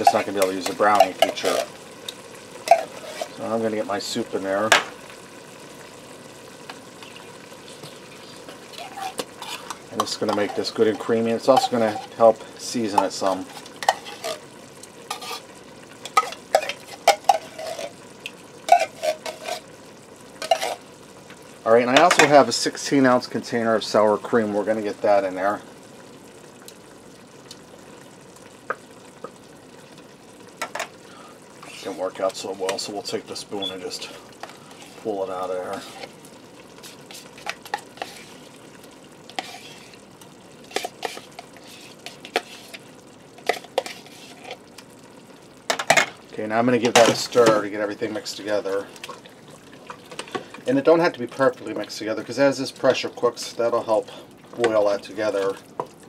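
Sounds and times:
spoon scraping a metal can: 0.0s - 1.7s, 2.7s - 3.4s, 8.8s - 12.2s, 13.0s - 14.4s, 15.1s - 18.0s, 18.7s - 19.7s, 20.4s - 20.8s, 31.6s - 32.0s, 36.8s - 38.4s, 39.3s - 40.0s, 40.7s - 42.8s, 43.4s - 44.6s
food sizzling in a pot: 0.0s - 56.0s
spoon scraping plastic container: 8.8s - 10.7s, 40.7s - 42.8s, 43.4s - 44.6s.

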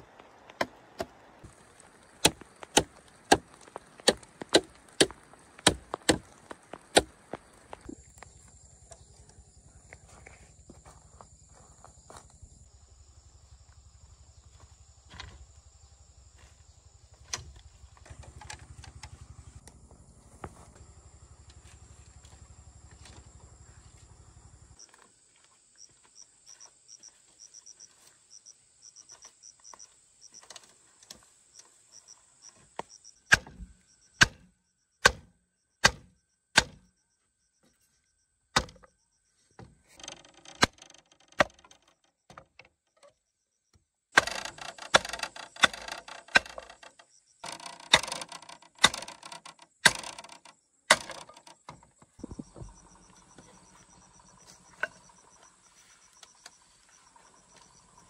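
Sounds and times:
crickets chirping: 0.0s - 58.0s
tool striking bamboo: 2.2s - 7.1s, 33.3s - 36.8s, 38.5s - 38.9s, 40.0s - 42.6s, 44.2s - 51.8s.

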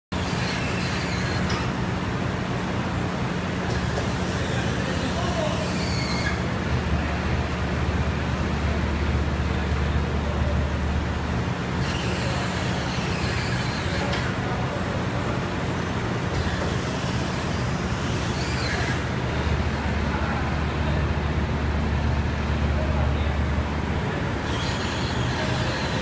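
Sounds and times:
hydraulic drive humming: 24.4s - 26.0s.

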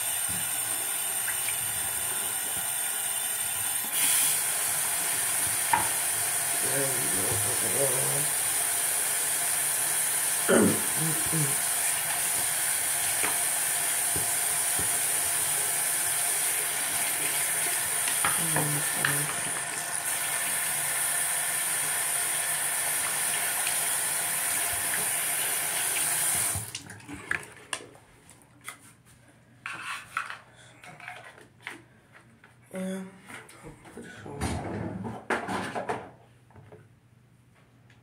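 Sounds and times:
sink tap running: 0.0s - 26.9s.

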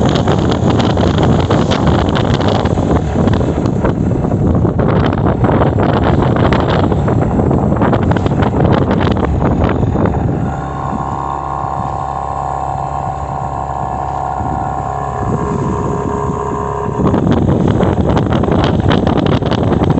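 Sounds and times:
outboard motor running: 0.0s - 19.9s
wind buffeting microphone: 0.0s - 19.9s.

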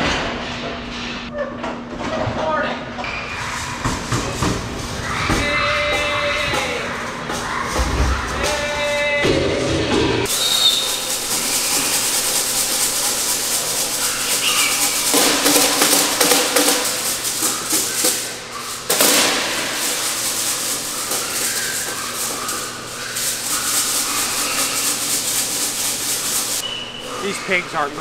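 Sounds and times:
piglets squealing: 5.0s - 9.4s, 10.2s - 28.0s
piglet hooves scuffling on floor: 10.3s - 28.0s.

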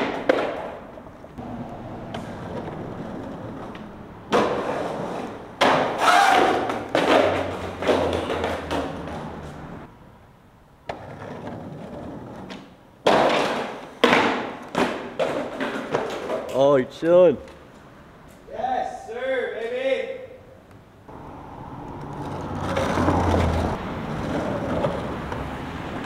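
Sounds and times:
skateboard clacking on concrete: 0.0s - 1.0s, 2.0s - 9.3s, 10.8s - 16.6s
skateboard wheels rolling: 0.0s - 9.9s, 10.7s - 16.7s, 21.1s - 26.0s.

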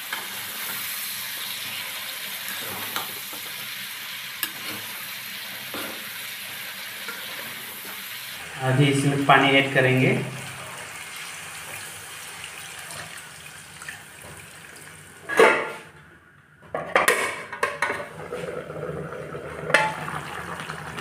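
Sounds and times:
water hissing and bubbling in wok: 0.0s - 15.3s, 18.0s - 21.0s.

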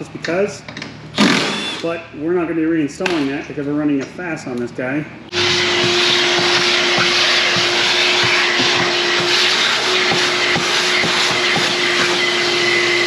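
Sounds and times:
shop vacuum humming: 5.3s - 13.0s.

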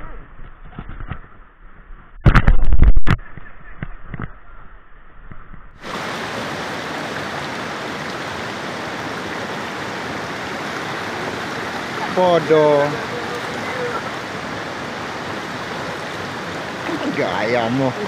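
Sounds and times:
river water rushing over rocks: 5.8s - 18.0s.

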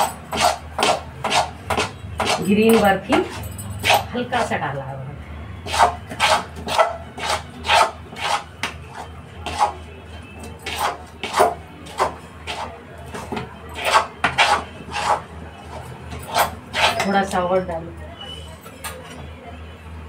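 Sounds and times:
metal spoon scraping metal pan: 0.0s - 4.2s, 5.6s - 9.9s, 10.6s - 12.8s, 13.8s - 17.2s.

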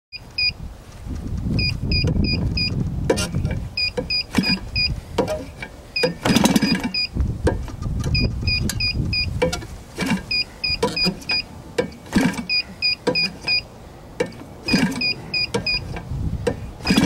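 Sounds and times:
engine rumble: 0.1s - 17.0s
high double beeps: 1.6s - 2.8s, 3.8s - 5.0s, 6.0s - 7.1s, 8.2s - 9.3s, 10.3s - 11.5s, 12.4s - 13.6s, 14.7s - 15.9s
propeller knocks: 2.1s - 13.6s, 14.2s - 17.0s.

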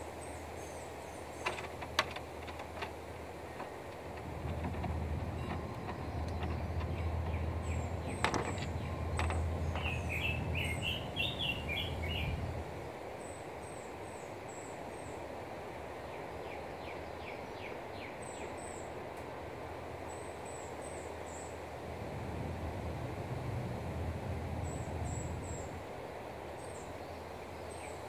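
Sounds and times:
steady outdoor hiss: 0.0s - 28.0s
songbirds chirping and singing: 0.2s - 12.7s
sharp clicks: 1.4s - 3.0s.

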